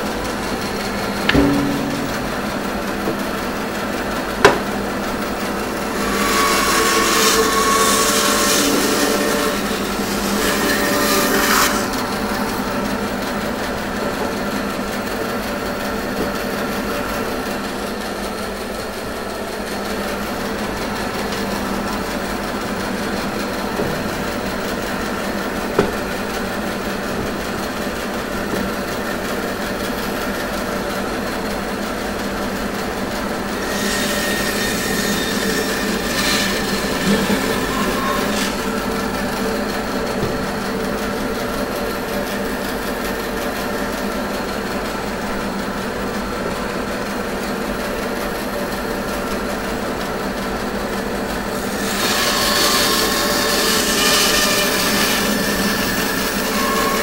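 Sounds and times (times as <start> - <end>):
bandsaw motor hum: 0.0 - 45.5
sharp knock: 1.2 - 3.7, 4.4 - 4.8, 25.7 - 26.3
bandsaw cutting wood: 5.7 - 12.8, 33.5 - 41.2, 51.6 - 57.0.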